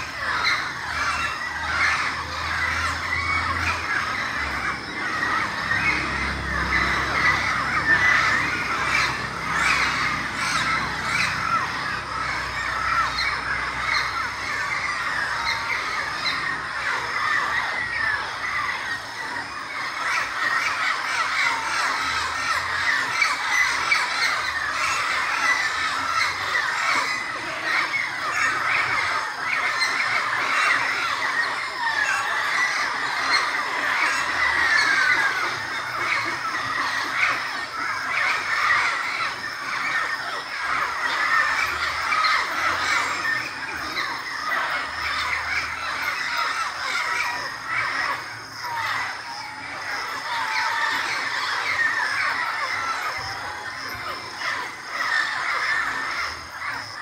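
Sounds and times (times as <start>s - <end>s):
chorus of many birds calling: 0.0s - 57.0s.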